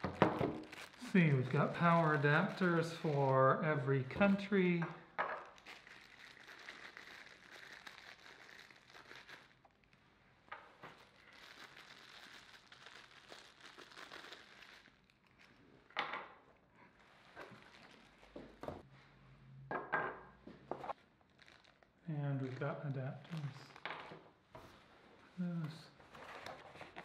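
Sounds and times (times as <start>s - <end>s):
plastic bags crinkling: 0.0s - 10.0s, 10.8s - 15.8s, 16.9s - 18.8s, 20.9s - 24.0s.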